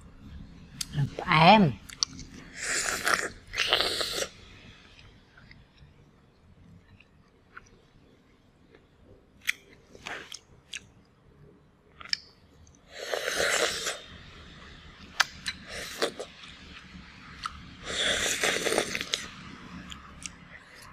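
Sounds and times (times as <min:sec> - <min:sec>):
person chewing crunchy food: 0:01.8 - 0:06.0, 0:06.8 - 0:11.0, 0:11.9 - 0:14.2, 0:15.1 - 0:20.9.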